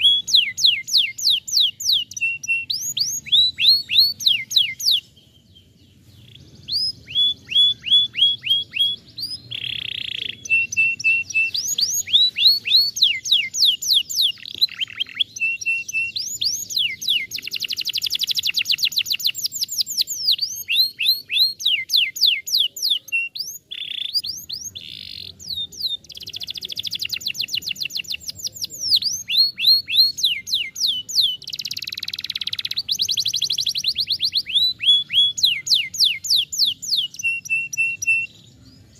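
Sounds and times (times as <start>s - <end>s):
canary singing: 0.0s - 38.9s.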